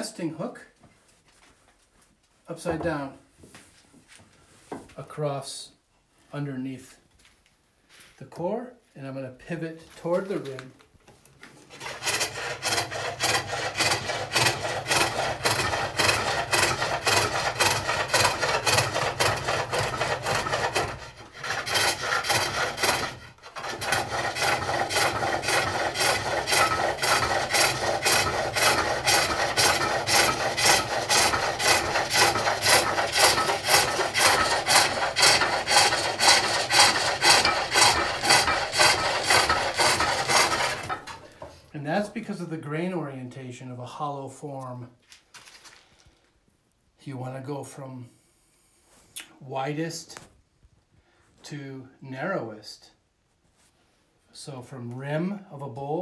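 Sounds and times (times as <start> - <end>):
hook tool rasping wood: 11.7 - 41.5.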